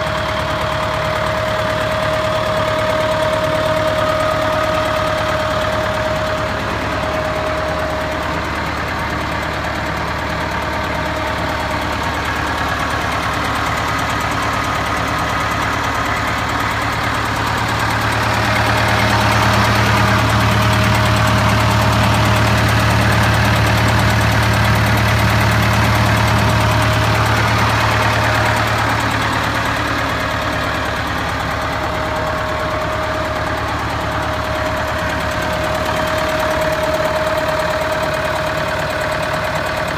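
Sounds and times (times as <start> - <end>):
tractor diesel engine idling: 0.0 - 39.9.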